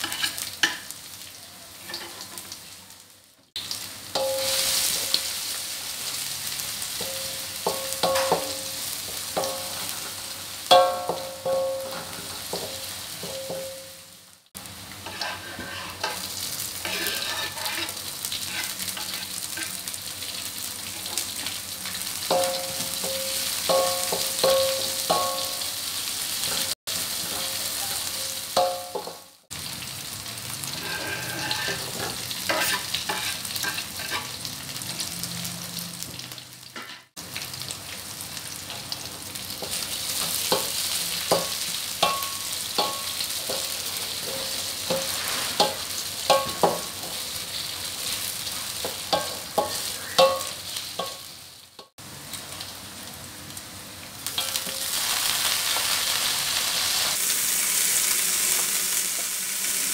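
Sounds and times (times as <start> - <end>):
metal spatula scraping a wok: 0.0 - 0.5, 15.0 - 19.8, 30.6 - 34.5, 39.6 - 47.2
food sizzling in hot oil: 0.0 - 59.9.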